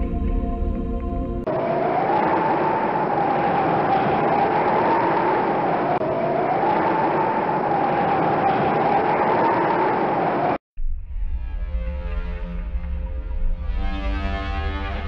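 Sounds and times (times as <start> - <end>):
strong wind howling: 0.0 - 11.8.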